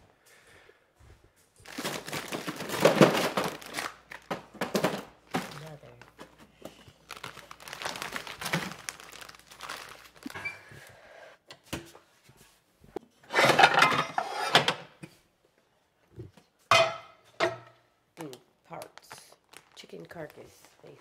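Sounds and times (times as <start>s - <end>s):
plastic bags rustling: 1.6s - 10.6s, 18.8s - 21.0s
metal pots and lids clattering: 13.2s - 15.0s, 16.7s - 17.8s.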